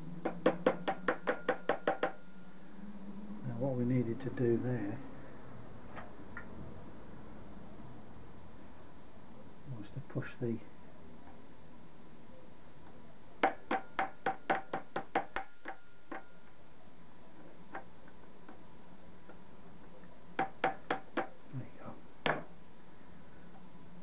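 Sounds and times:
small hammer tapping metal: 0:13.4 - 0:16.4.

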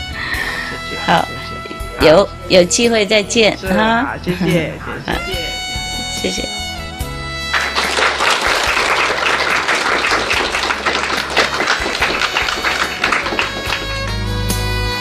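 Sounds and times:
background music: 0:00.0 - 0:15.0
audience applauding: 0:07.5 - 0:14.3.

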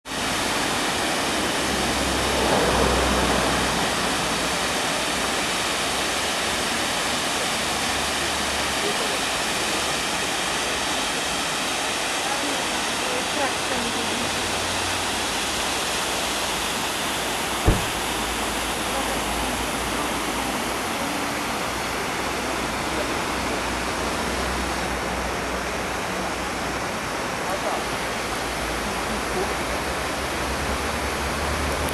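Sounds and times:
waterfall rushing: 0:00.1 - 0:31.9.

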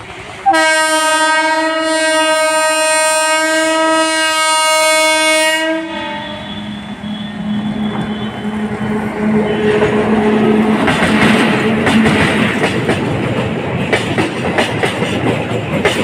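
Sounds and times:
locomotive humming: 0:00.0 - 0:16.0
train rumbling: 0:00.0 - 0:16.0
locomotive horn blast: 0:00.4 - 0:10.7.

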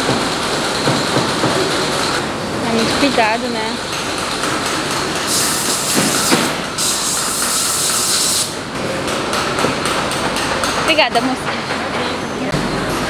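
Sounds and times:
factory machinery noise: 0:00.0 - 0:13.0
loud hiss: 0:05.3 - 0:08.6.

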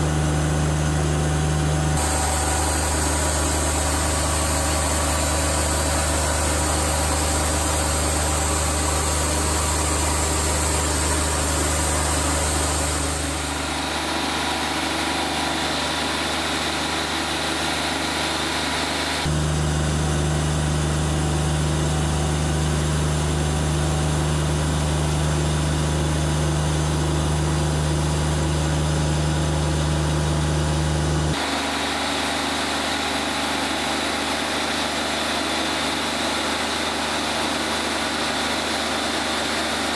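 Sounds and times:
engine droning: 0:00.0 - 0:25.0
bandsaw cutting log: 0:02.0 - 0:19.3.

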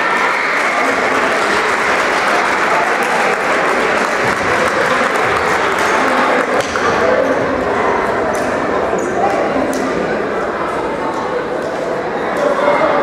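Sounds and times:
spectators applauding: 0:00.0 - 0:07.2.

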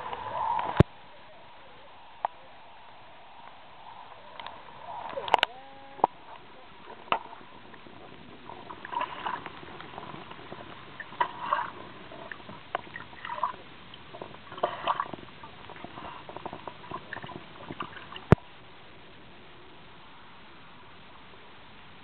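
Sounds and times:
water sloshing and gurgling: 0:04.4 - 0:18.6.

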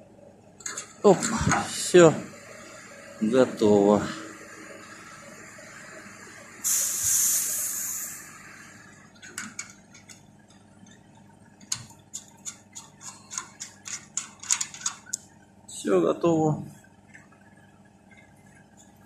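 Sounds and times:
gas hissing from valve: 0:06.6 - 0:08.9.

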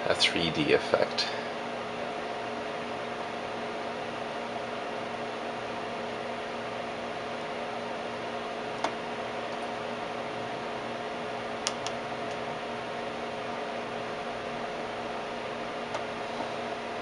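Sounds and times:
fan noise and mains hum: 0:00.0 - 0:17.0
control switch clicks: 0:11.6 - 0:12.4.

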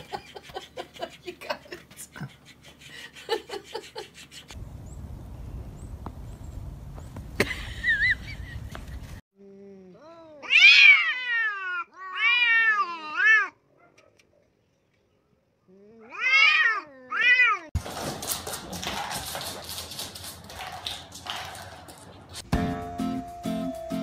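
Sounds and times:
cats yowling: 0:10.4 - 0:13.6, 0:16.0 - 0:17.7.

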